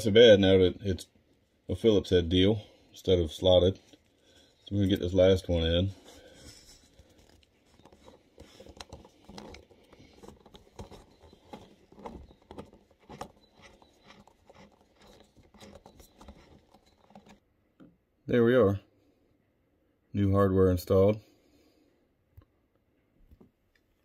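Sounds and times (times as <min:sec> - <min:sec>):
screwdriver clicking and scraping: 0:06.4 - 0:17.4.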